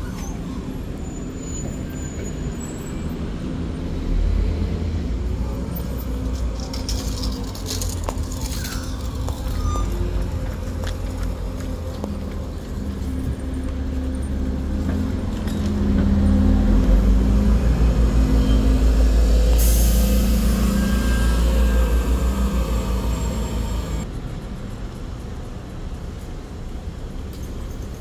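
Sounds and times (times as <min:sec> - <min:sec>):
bus engine rumbling: 0:00.0 - 0:28.0
air hiss: 0:19.5 - 0:21.4.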